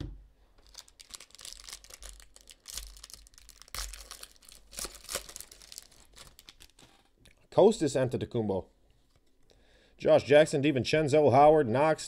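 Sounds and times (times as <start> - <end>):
foil wrapper crinkling and tearing: 0.6 - 7.1.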